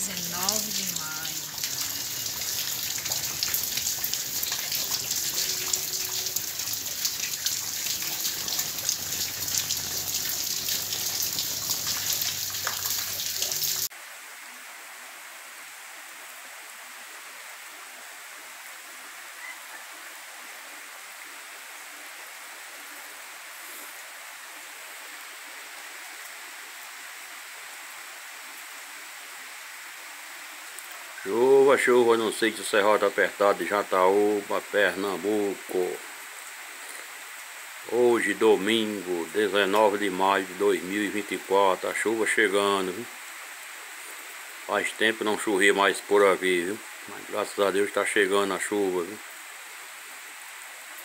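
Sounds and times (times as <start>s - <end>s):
heavy rain pouring: 0.0s - 13.9s
light rain hiss: 0.0s - 51.0s.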